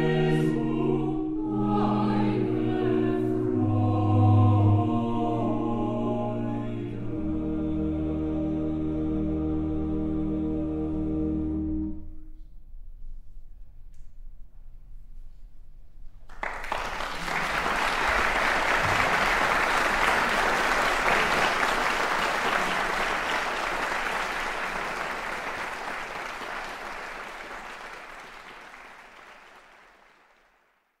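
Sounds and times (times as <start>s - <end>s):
audience applauding: 16.3s - 30.8s.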